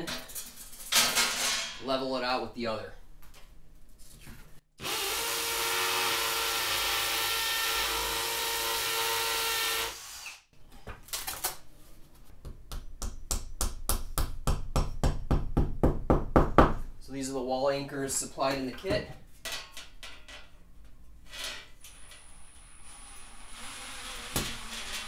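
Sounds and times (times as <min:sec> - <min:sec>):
drill boring into block wall: 0:04.8 - 0:10.4, 0:21.9 - 0:25.0.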